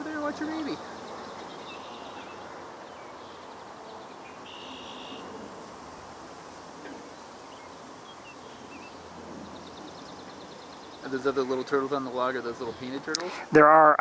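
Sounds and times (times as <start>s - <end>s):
faint high bird chirps: 0.4s - 5.3s.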